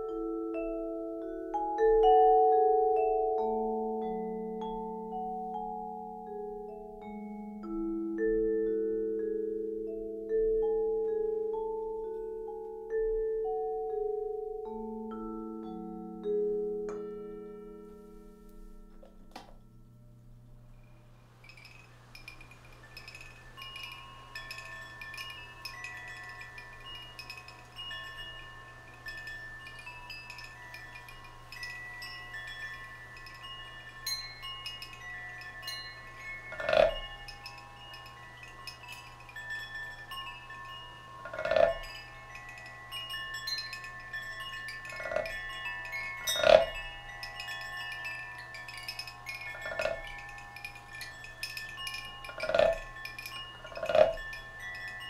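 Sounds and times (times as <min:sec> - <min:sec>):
metal chimes ringing: 0:00.0 - 0:55.0.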